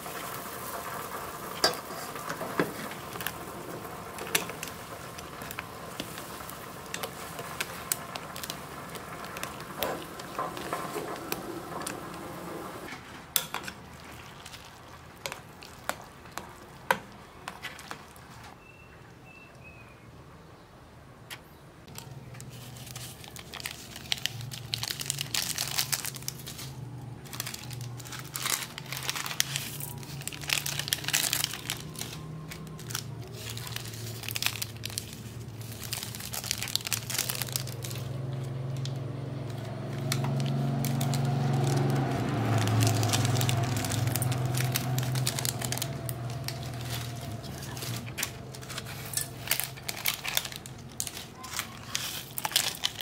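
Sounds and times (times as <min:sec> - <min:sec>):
plastic sachets crinkling and tearing: 0:00.0 - 0:12.3, 0:13.4 - 0:18.6, 0:21.9 - 0:53.0.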